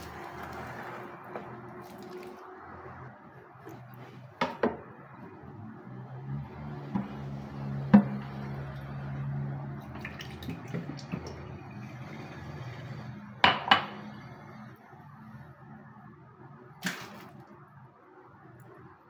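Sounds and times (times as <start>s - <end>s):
oil pouring into a pan: 9.7s - 11.8s
kitchenware knocks: 13.4s - 14.0s.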